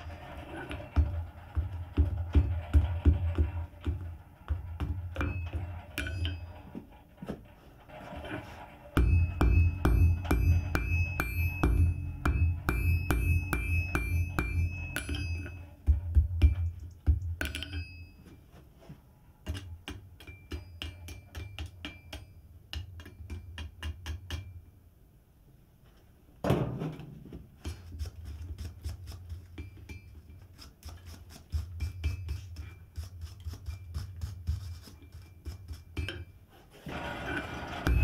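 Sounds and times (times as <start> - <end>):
hammer striking anvil: 0.0 - 6.8, 8.9 - 18.2, 19.8 - 24.6
metal clatter: 0.0 - 18.1, 36.9 - 38.0
anvil ringing: 4.6 - 6.8, 8.9 - 16.6, 17.4 - 18.2, 37.8 - 38.0.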